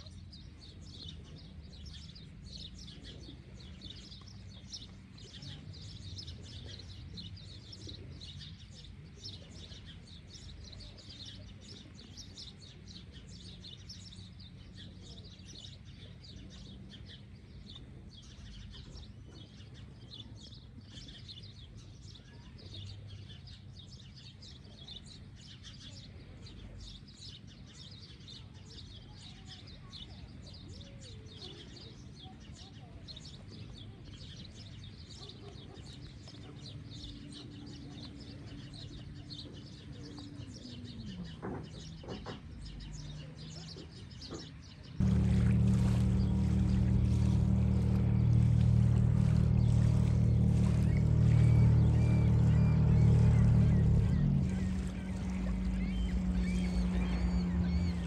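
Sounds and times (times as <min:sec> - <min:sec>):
small birds chirping: 0:00.0 - 0:58.0
low steady rumble: 0:45.0 - 0:58.0.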